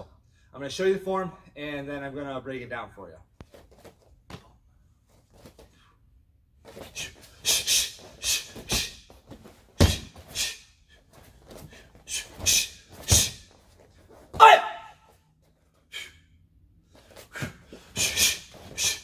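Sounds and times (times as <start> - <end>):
sharp forceful exhalations: 6.8 - 9.0, 9.8 - 10.7, 11.6 - 13.5, 17.2 - 19.0
bare feet thudding on mat: 8.6 - 10.3.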